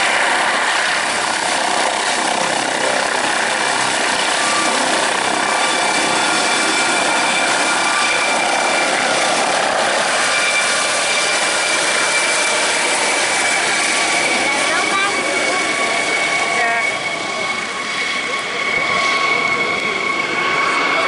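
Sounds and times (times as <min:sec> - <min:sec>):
helicopter taking off: 0:00.0 - 0:21.0
high turbine whine: 0:00.0 - 0:21.0.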